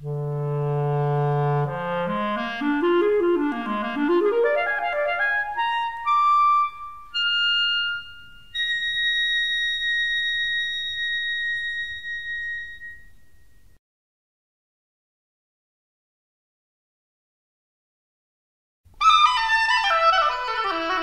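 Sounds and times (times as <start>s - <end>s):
solo clarinet: 0.0s - 13.4s, 19.0s - 21.0s.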